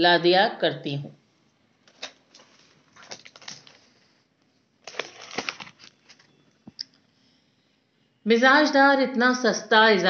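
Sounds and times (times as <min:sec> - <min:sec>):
paper page rustling: 0:01.9 - 0:04.1, 0:04.8 - 0:06.3.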